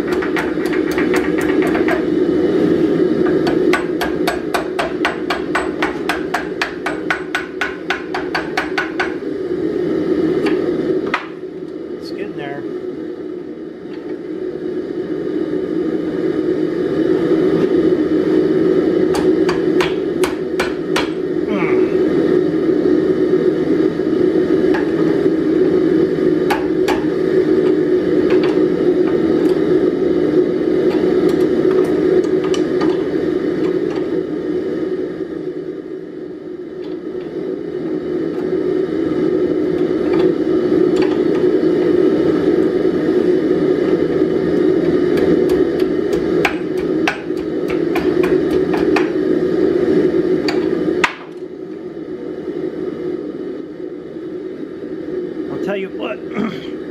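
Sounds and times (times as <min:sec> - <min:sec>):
hammer ringing on hot steel: 0:03.4 - 0:09.2, 0:19.2 - 0:21.2
steady low drone: 0:08.8 - 0:56.9.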